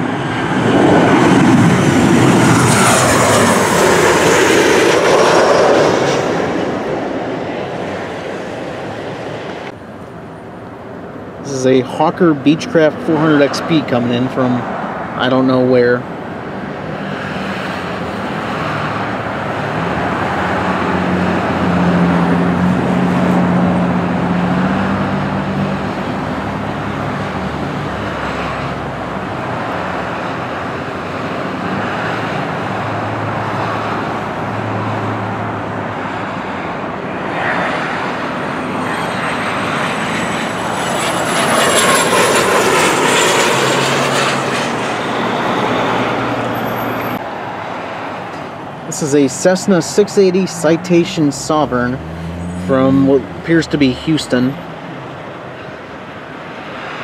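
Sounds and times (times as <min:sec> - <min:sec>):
high jet whine falling in pitch: 0:00.0 - 0:14.4, 0:35.8 - 0:47.2, 0:48.1 - 0:56.1
jet engine noise: 0:00.0 - 0:57.0.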